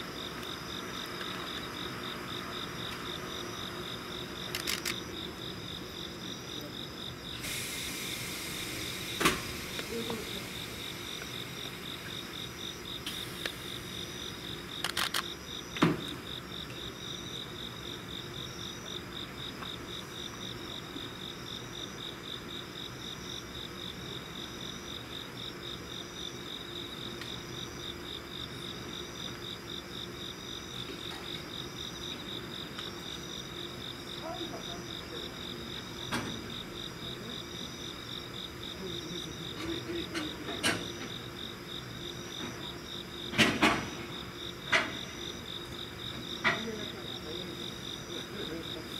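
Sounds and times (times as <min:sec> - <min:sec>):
crickets chirping: 0:00.0 - 0:48.9
short hiss: 0:07.4 - 0:11.6.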